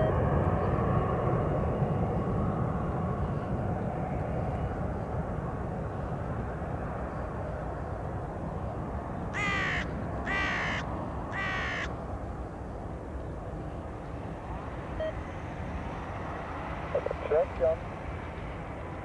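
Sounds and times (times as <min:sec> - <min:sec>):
crow cawing: 0:09.4 - 0:11.9
jet rumble: 0:12.0 - 0:19.0.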